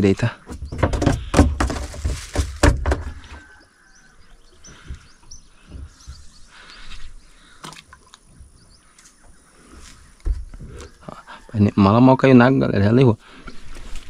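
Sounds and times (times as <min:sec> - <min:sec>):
birds chirping: 0:00.0 - 0:14.0
soft low thumps: 0:04.6 - 0:06.5.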